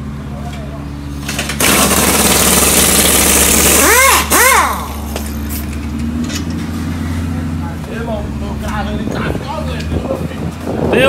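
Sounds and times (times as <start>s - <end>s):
pneumatic impact wrench hammering: 1.2s - 6.6s.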